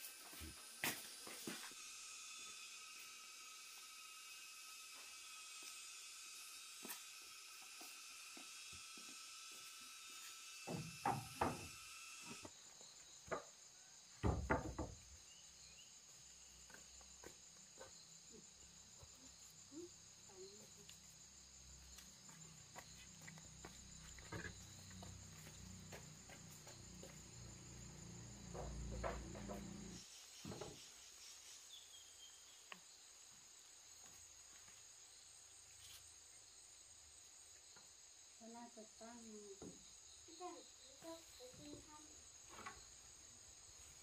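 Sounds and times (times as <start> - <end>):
insects calling: 0.0 - 44.0
dull knocks: 14.2 - 15.0.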